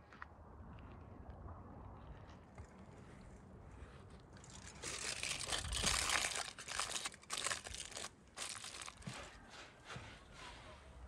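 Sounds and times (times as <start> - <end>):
coarse salt crunching under hand: 4.4 - 9.3.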